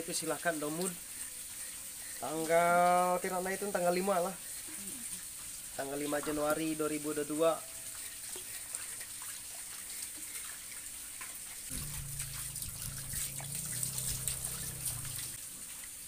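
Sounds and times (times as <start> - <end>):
water splashing from hose: 0.0 - 16.0
low steady hum: 11.7 - 15.4.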